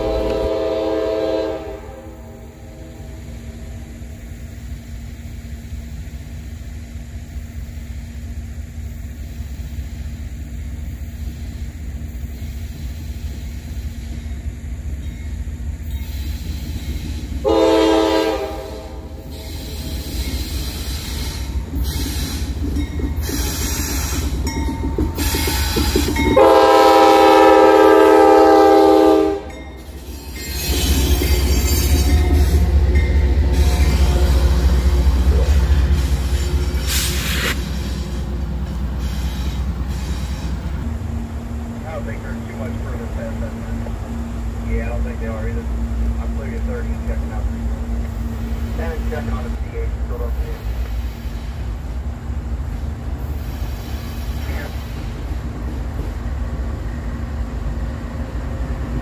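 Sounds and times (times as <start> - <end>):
train horn blasts: 0.0 - 3.8, 17.4 - 19.8, 25.4 - 29.8, 30.5 - 35.9
diesel locomotive engine rumble: 0.0 - 59.0.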